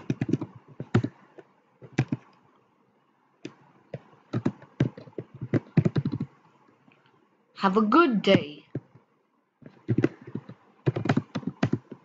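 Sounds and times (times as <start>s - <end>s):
keyboard typing: 0.0s - 2.4s, 3.4s - 6.4s, 8.7s - 12.0s.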